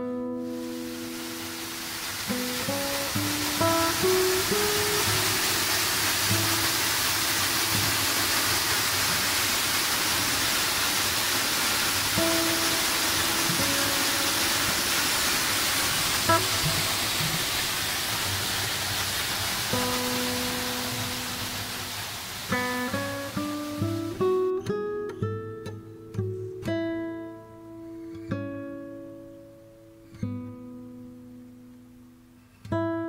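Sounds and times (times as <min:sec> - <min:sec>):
acoustic guitar music: 0:00.0 - 0:09.3, 0:12.0 - 0:33.0
waterfall pouring: 0:00.4 - 0:24.5.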